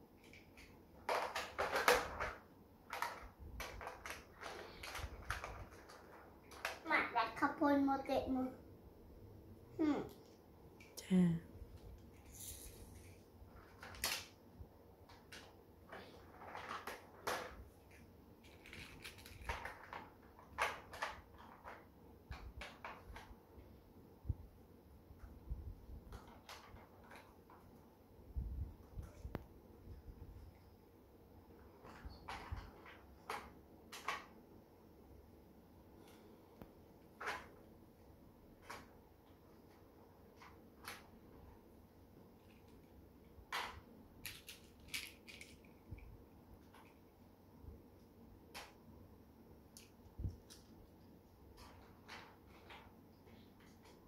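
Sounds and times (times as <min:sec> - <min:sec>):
toy vehicles clattering in plastic truck: 0:00.2 - 0:06.9, 0:13.0 - 0:14.3, 0:15.1 - 0:23.3, 0:26.1 - 0:27.7, 0:31.8 - 0:34.3, 0:43.5 - 0:45.8, 0:51.5 - 0:54.0
plastic toy vehicles knocking: 0:00.3 - 0:06.9.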